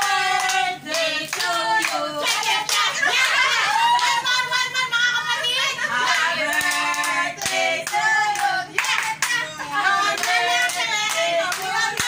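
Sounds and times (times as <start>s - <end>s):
women singing together: 0.0s - 12.0s
hands clapping: 6.5s - 9.4s, 10.2s - 12.0s.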